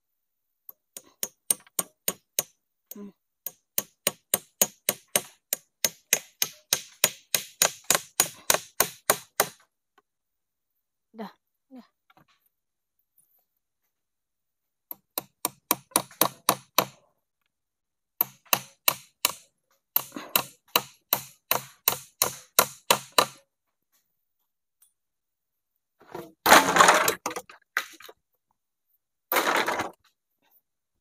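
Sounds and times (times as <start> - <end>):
hammer driving nail into wood: 0.9 - 2.6, 3.4 - 9.6, 14.9 - 17.0, 18.2 - 23.4.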